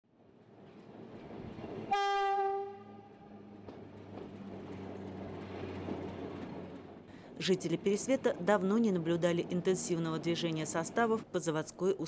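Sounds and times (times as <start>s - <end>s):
train horn blast: 1.9s - 3.3s.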